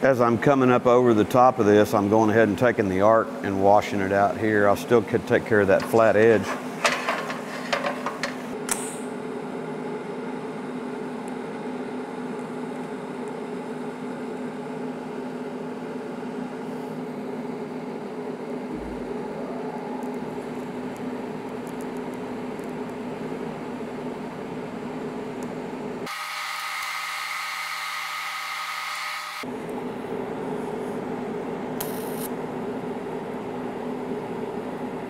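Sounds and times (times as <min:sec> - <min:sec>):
welding arc humming: 0:20.0 - 0:30.1, 0:31.8 - 0:32.4.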